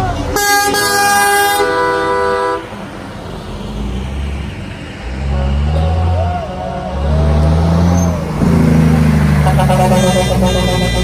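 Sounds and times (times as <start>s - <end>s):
diesel truck engines passing: 0.0s - 11.0s
truck air horn: 0.2s - 2.8s, 5.2s - 8.1s, 9.4s - 11.0s.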